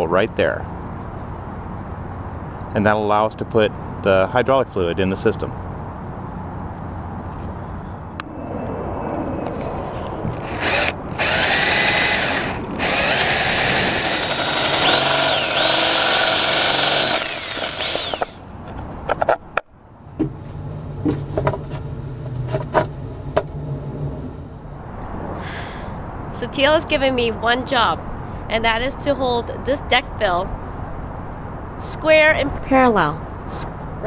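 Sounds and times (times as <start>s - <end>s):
cordless drill boring: 10.4s - 18.4s.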